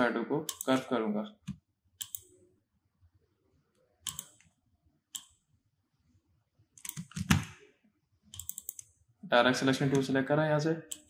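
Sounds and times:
keyboard and mouse clicks: 0.4 - 2.4, 4.0 - 5.4, 6.8 - 7.6, 8.3 - 9.0.

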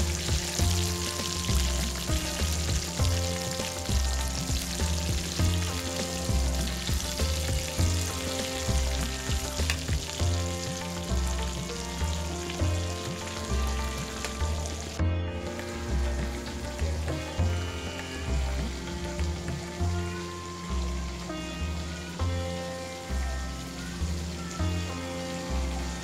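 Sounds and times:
music with bass beat: 0.0 - 26.0
oil sizzling: 0.0 - 26.0.

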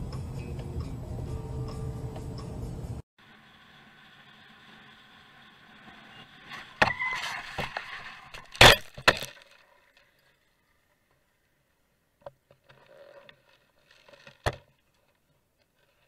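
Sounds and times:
knocks and scraping: 6.0 - 10.1.

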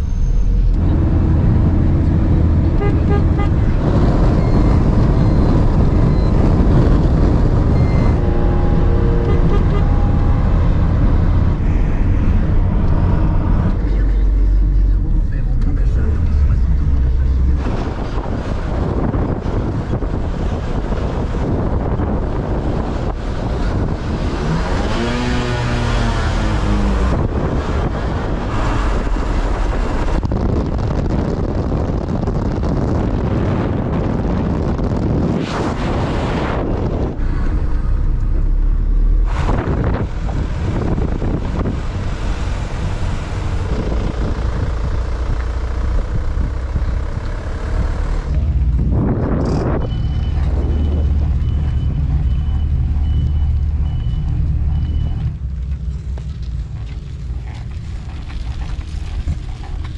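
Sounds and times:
vehicle engine and road rumble: 0.0 - 59.9
wind: 0.0 - 59.9
beeping: 2.7 - 15.0, 49.6 - 55.4.

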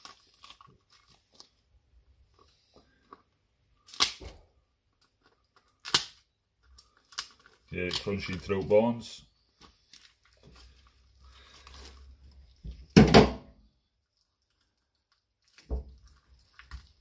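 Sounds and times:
thud on wooden chopping block: 13.0 - 13.5.

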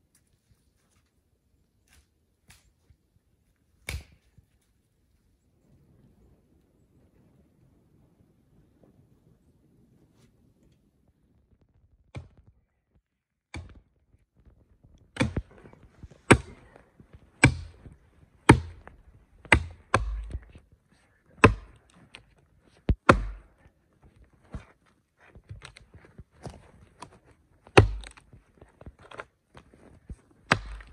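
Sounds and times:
axe chopping tree trunk: 3.8 - 4.2, 13.5 - 13.8, 15.2 - 20.5, 21.4 - 22.2, 22.8 - 23.6, 26.4 - 28.3, 30.4 - 30.9.

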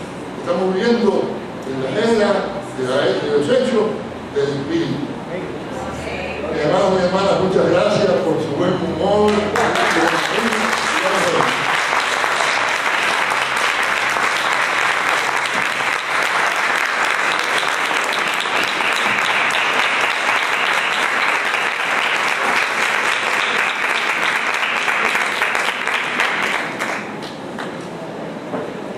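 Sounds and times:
audience applauding: 9.3 - 27.8.

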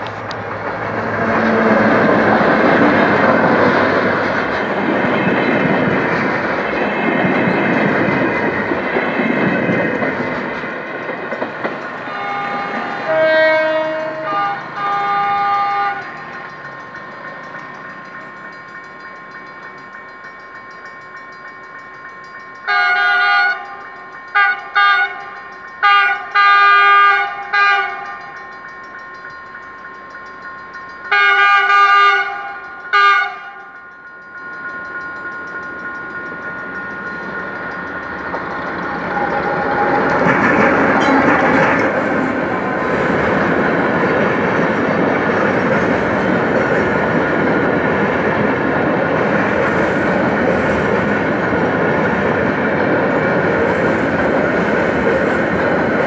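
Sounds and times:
freight train rumble: 0.0 - 56.0
train wheels rumbling: 0.0 - 56.0
locomotive air horn blasts: 12.1 - 16.1, 22.7 - 23.6, 24.4 - 25.2, 25.8 - 28.1, 31.1 - 33.6.

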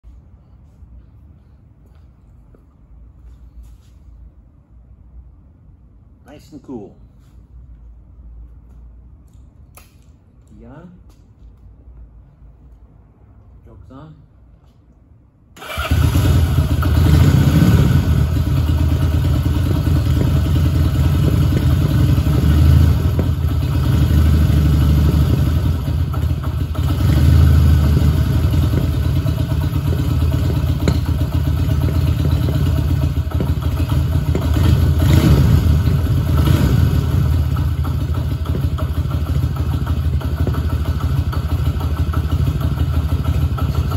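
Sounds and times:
motorcycle engine running: 15.6 - 43.9.

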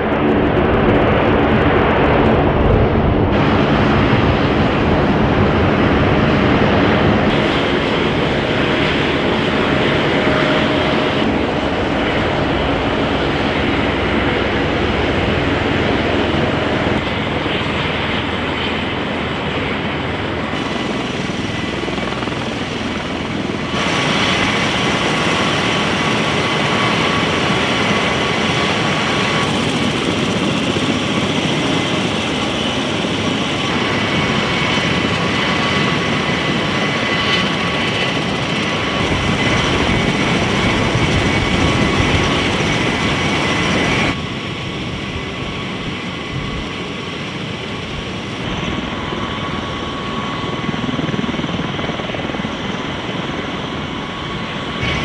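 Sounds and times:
turbine whine: 0.0 - 55.0.

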